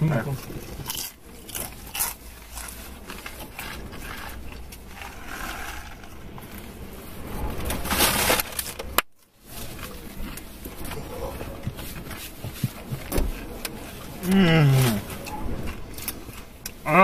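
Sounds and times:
chewing: 0:00.3 - 0:06.5, 0:09.6 - 0:17.0.

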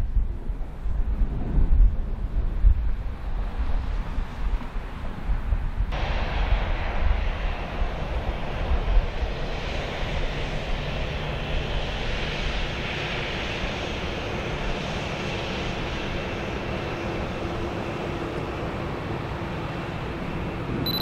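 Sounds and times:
jet engines at takeoff: 0:00.0 - 0:21.0.

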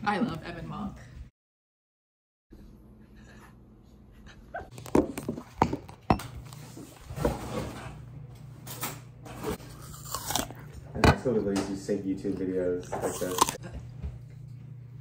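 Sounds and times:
dog-like whimpers and yelps: 0:04.2 - 0:04.8.

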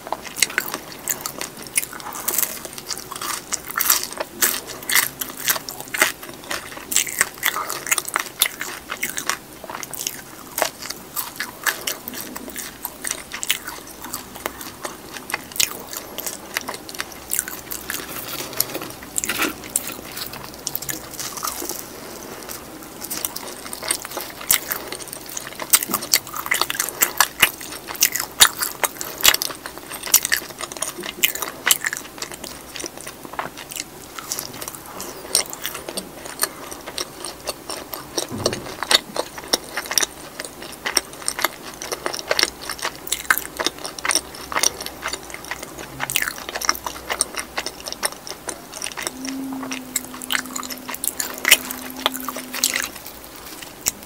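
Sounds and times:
chewing crunchy fried food: 0:00.0 - 0:54.0.

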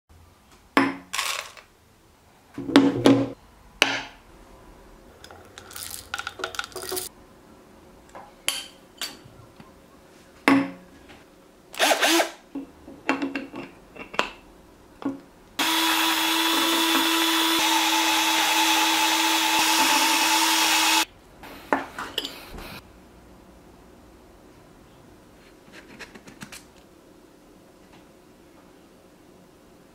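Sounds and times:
drill spinning coffee grinder: 0:11.8 - 0:12.4, 0:15.6 - 0:21.1.

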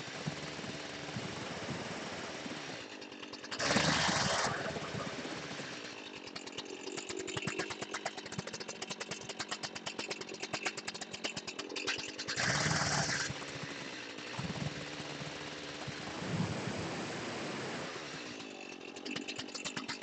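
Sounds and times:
chainsaw cutting wood: 0:00.0 - 0:20.0
chainsaw idling: 0:00.0 - 0:20.0.

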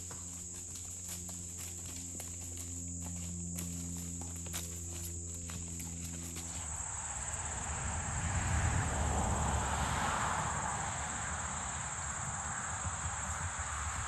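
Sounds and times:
insects chirring: 0:00.0 - 0:08.1.

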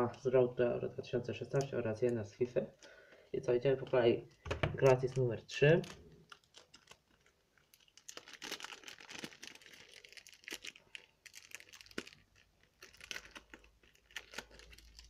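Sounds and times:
wrapper crinkling and tearing: 0:04.8 - 0:15.0.

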